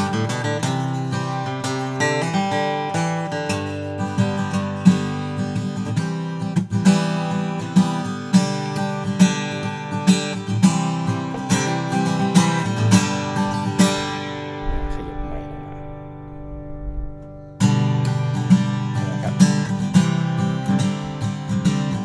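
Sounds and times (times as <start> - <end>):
acoustic guitar chords strummed: 0.0 - 22.0
person talking: 13.6 - 17.1, 19.0 - 19.7.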